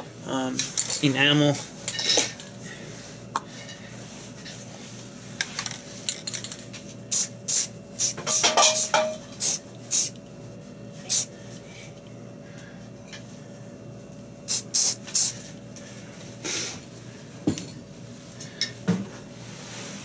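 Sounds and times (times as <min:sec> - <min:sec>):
aerosol can spray bursts: 0:08.8 - 0:10.1, 0:14.5 - 0:15.4.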